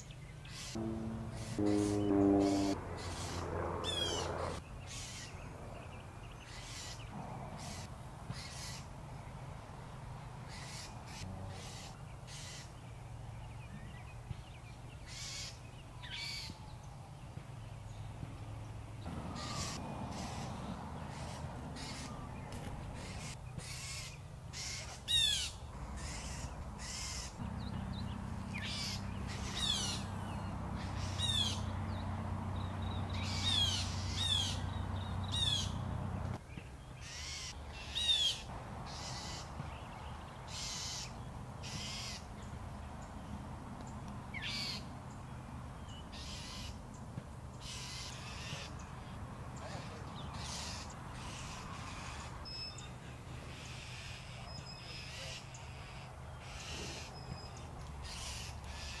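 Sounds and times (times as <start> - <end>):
birds giving harsh alarm calls: 0.5 - 5.4, 6.5 - 8.8, 10.5 - 12.7, 19.1 - 31.8, 32.8 - 36.2, 37.0 - 42.3, 46.1 - 46.8, 47.6 - 52.9, 53.5 - 59.0
low steady hum: 0.6 - 4.6.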